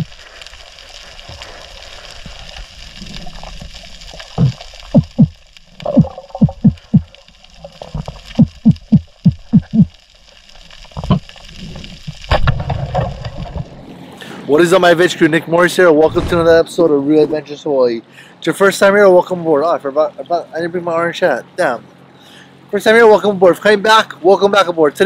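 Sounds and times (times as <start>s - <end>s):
steady underwater hiss: 0.0s - 25.0s
short low thumps: 4.4s - 5.3s, 5.9s - 7.1s, 16.0s - 16.6s.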